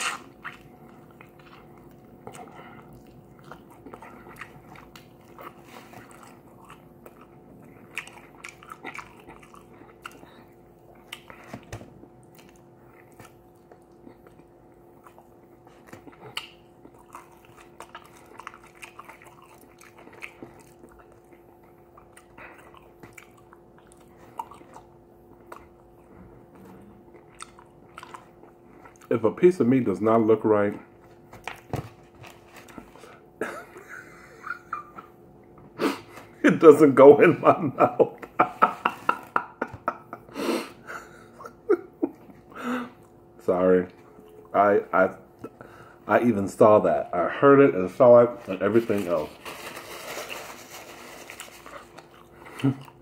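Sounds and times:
person chewing crispy chicken: 0:00.0 - 0:29.2, 0:48.7 - 0:53.0
faint steady hum: 0:00.0 - 0:53.0.

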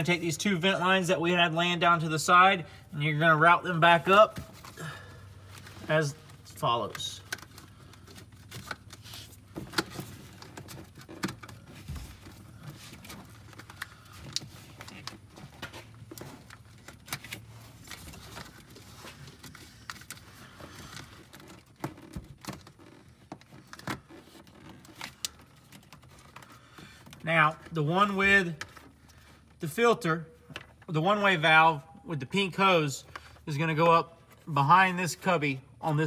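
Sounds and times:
rubber hoses rustling and rubbing: 0:03.6 - 0:29.6.

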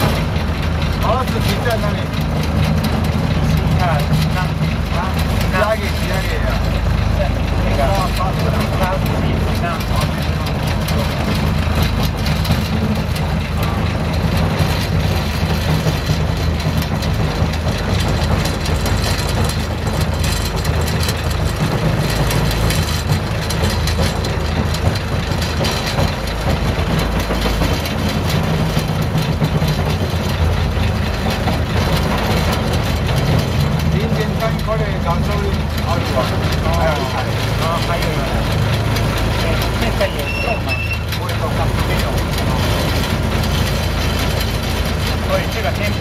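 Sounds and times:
diesel locomotive engine idling: 0:00.0 - 0:46.0.

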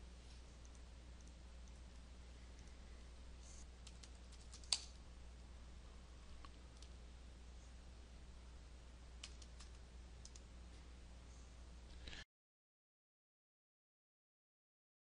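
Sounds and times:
faint low hum: 0:00.0 - 0:12.2
computer keyboard keystrokes: 0:03.8 - 0:04.9, 0:09.2 - 0:10.4.

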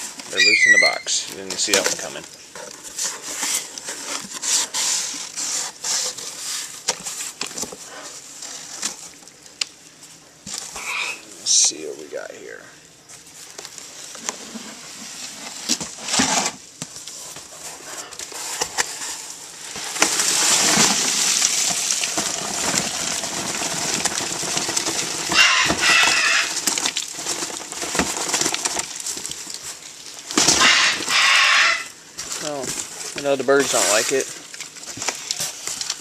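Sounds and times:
cardboard box rustling and scraping: 0:00.0 - 0:09.2, 0:13.1 - 0:36.0
pet bird calling: 0:00.3 - 0:01.1.

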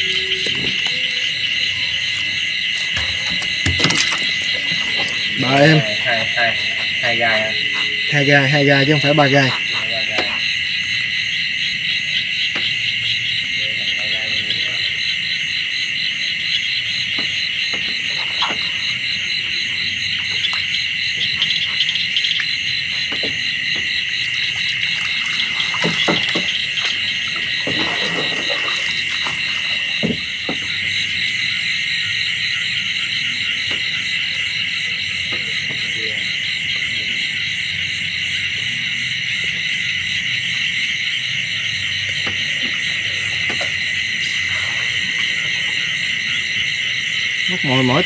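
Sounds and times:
frogs calling: 0:00.0 - 0:48.0
insects trilling: 0:00.0 - 0:48.0
knocks and rustles: 0:02.8 - 0:05.3, 0:25.0 - 0:30.8.

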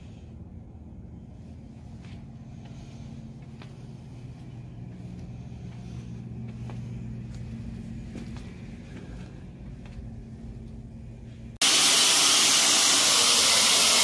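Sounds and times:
cleaning machine droning: 0:11.6 - 0:14.0.

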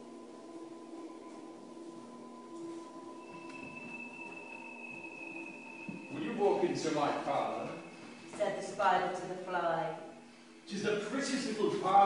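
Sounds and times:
drone of held tones: 0:00.0 - 0:09.4.

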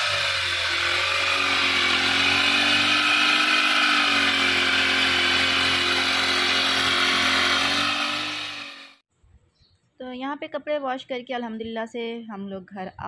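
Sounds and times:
two-stroke engine running: 0:00.0 - 0:09.0.

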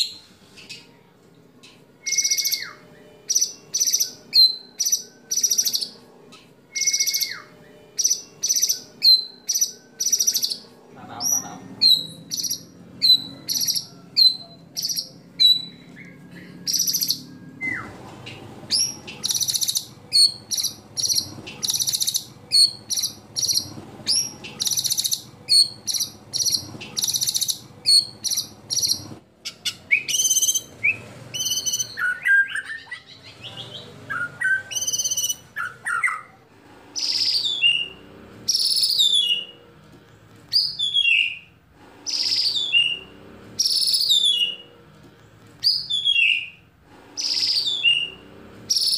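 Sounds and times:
songbird singing sharp high notes: 0:02.0 - 0:06.0, 0:06.7 - 0:10.6, 0:11.2 - 0:17.9, 0:18.7 - 0:36.3, 0:37.0 - 0:39.5, 0:42.1 - 0:44.7, 0:47.2 - 0:48.9.

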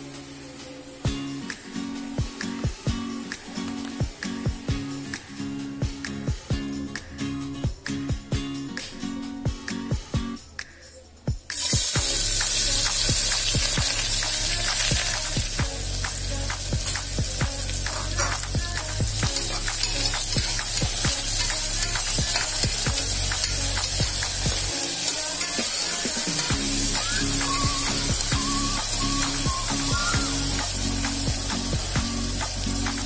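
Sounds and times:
onions sizzling in oil: 0:11.5 - 0:33.0.

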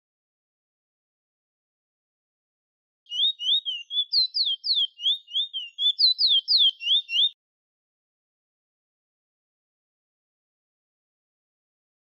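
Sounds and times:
bird singing slurred whistles: 0:03.1 - 0:07.4.

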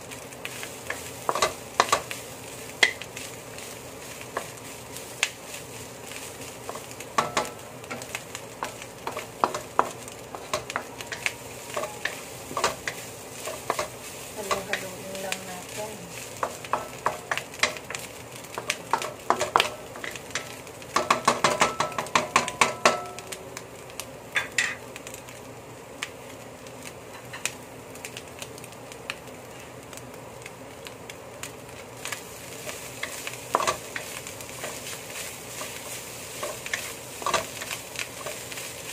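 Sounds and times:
carrots sizzling in oil: 0:00.0 - 0:38.9
spatula scraping and knocking wok: 0:00.4 - 0:23.3, 0:32.0 - 0:38.9.

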